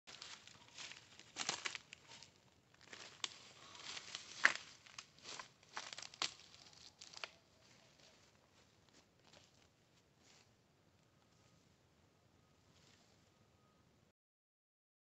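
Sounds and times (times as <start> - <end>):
footsteps crunching through dry grass: 0.1 - 10.6.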